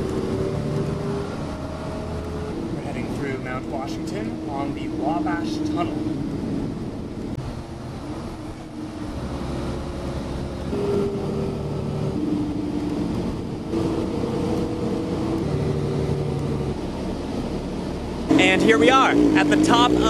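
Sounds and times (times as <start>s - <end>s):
bus engine and road rumble: 0.0s - 20.0s
hum stepping in pitch: 0.0s - 20.0s.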